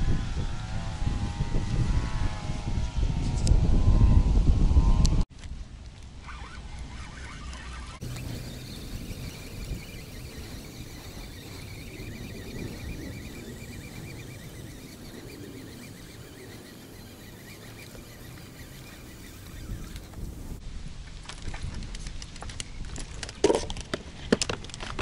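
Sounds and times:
wind buffeting microphone: 0.0 - 5.3, 6.4 - 23.1
rapid high chirping: 6.3 - 20.6.

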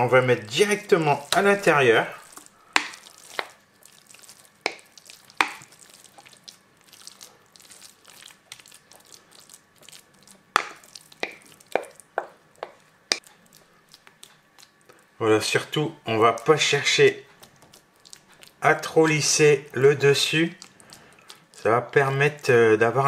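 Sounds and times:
soft plops of pudding mixture: 0.5 - 22.6.

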